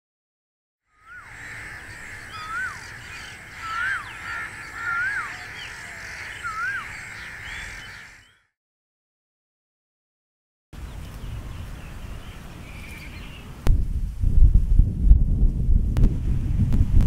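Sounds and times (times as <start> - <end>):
background birds and insects: 0.9 - 8.4, 10.8 - 13.6.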